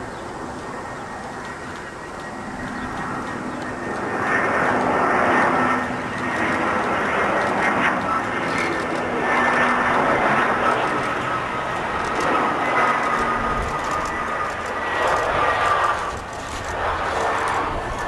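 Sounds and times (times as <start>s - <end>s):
jet engines rumbling and whining: 0.0s - 18.0s.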